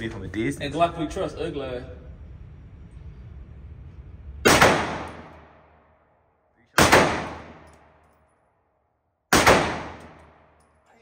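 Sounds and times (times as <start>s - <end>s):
pistol shots with echo: 4.4s - 5.6s, 6.8s - 7.8s, 9.3s - 10.5s.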